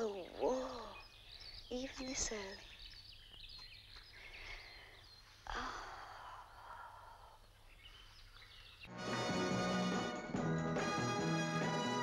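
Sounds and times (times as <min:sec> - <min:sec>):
faint birds chirping: 0:00.0 - 0:08.9.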